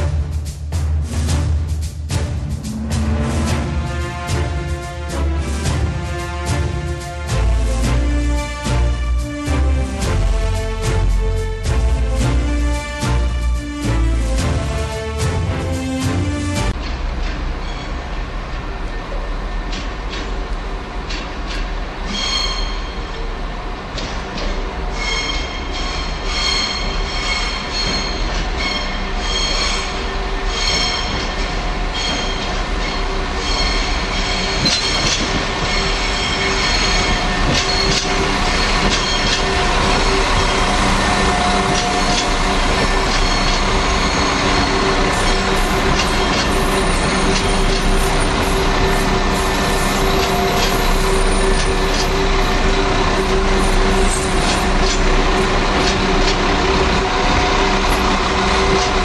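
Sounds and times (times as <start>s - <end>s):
train wheels squealing: 17.6s - 18.1s, 22.0s - 23.3s, 24.4s - 55.2s
diesel engine drone: 37.2s - 59.0s.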